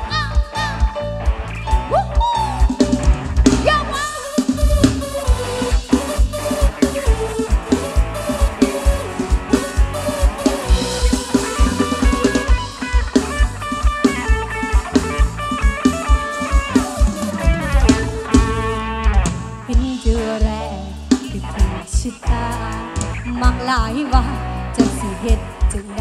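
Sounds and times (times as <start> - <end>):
plucked string lead melody: 0.0 - 19.7
bass: 0.0 - 26.0
drum kit beat: 0.0 - 26.0.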